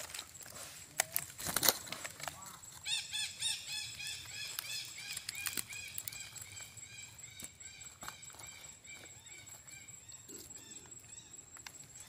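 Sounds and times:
sharp clicks: 4.2s - 6.6s.

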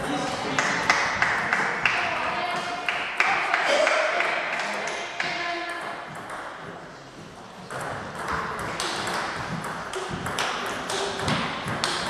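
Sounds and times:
ball bouncing on table: 7.7s - 12.0s
ball clicking off rackets: 7.7s - 12.0s.

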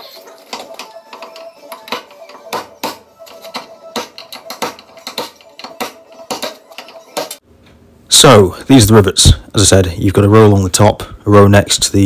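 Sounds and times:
hammer striking chisel on metal: 0.5s - 7.4s.

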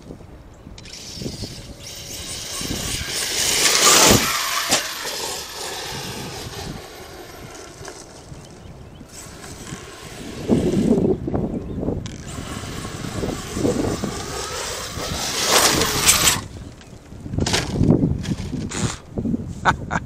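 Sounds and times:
rc truck electric motor whining: 0.8s - 11.4s, 12.0s - 16.8s
tyres scrabbling on dirt: 0.9s - 11.2s, 12.0s - 19.1s.

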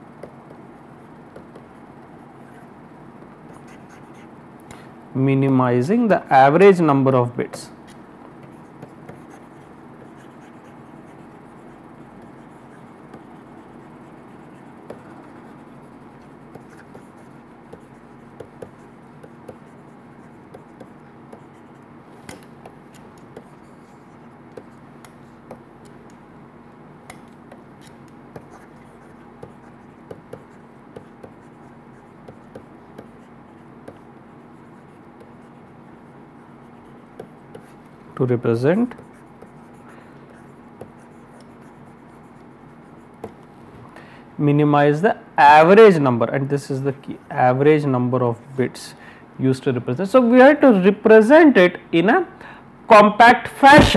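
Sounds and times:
steady low hum: 0.0s - 53.9s
stylus tapping on a tablet: 0.2s - 0.6s, 1.3s - 1.8s, 16.5s - 19.7s, 22.2s - 23.6s, 24.5s - 26.2s, 27.1s - 28.6s, 29.4s - 31.5s, 32.2s - 34.0s, 43.2s - 43.5s.

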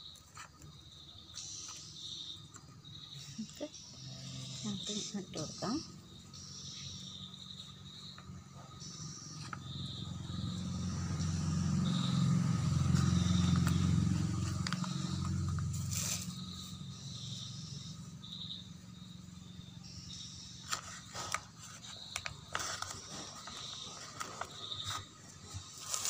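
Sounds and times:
hands scraping soil and plastic bag: 14.3s - 16.4s, 20.6s - 26.0s.

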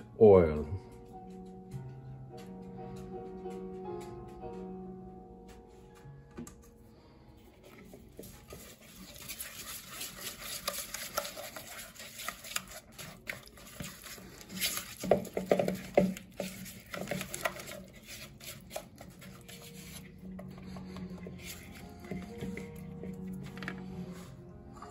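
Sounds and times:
spatula scraping a mixing bowl: 7.6s - 23.4s.

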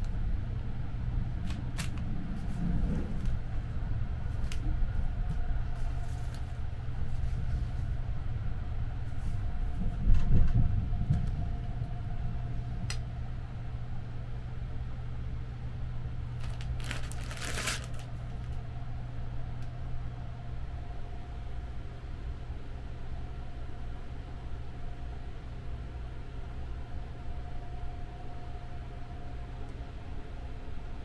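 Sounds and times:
train rumbling: 0.0s - 13.7s
plastic packets crinkling: 16.4s - 18.5s.

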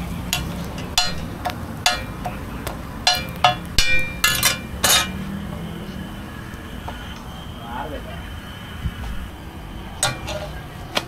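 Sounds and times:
metal spatula tapping griddle: 0.3s - 5.2s, 10.0s - 11.0s.

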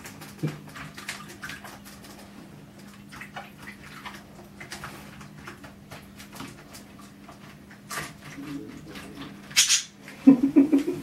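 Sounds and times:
small water splashes: 0.0s - 9.8s.

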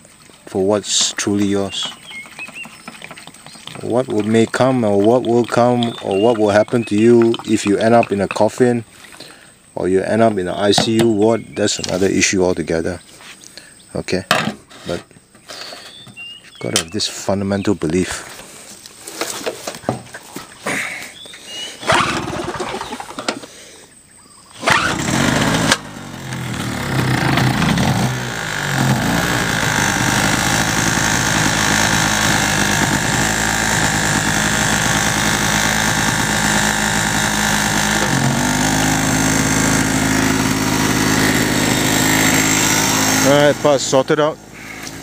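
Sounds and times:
petrol generator engine running: 24.6s - 45.0s.

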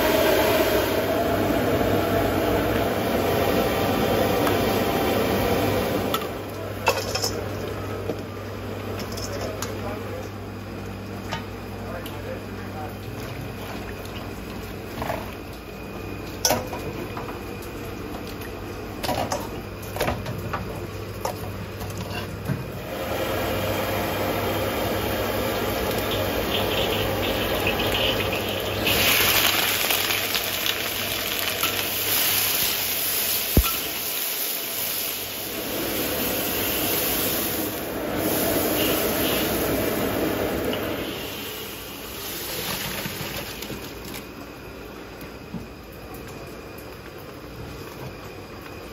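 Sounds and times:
hot oil sizzling in a wok: 23.5s - 43.3s.

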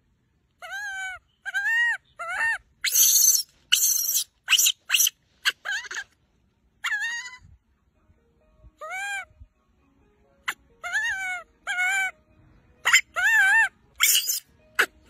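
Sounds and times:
monkey whistle-like coos: 0.7s - 6.0s, 12.9s - 14.9s
monkey shrill screeches: 1.5s - 6.0s, 6.8s - 7.4s, 12.8s - 14.9s.

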